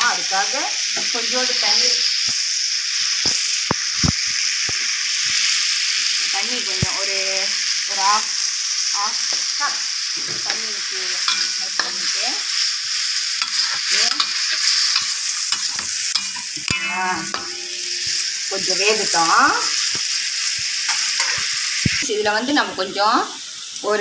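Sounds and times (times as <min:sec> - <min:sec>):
food sizzling in oil: 0:00.0 - 0:24.0
steel spoon scraping wok: 0:11.2 - 0:22.0.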